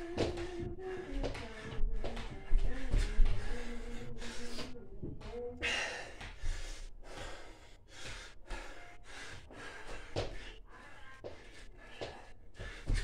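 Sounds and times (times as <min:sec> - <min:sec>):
man breathing hard: 0:02.6 - 0:04.8, 0:05.6 - 0:13.0.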